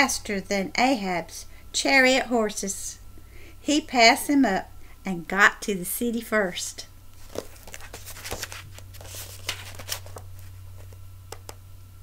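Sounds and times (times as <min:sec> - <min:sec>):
low steady hum: 0:00.0 - 0:12.0
book pages rustling: 0:07.2 - 0:11.5.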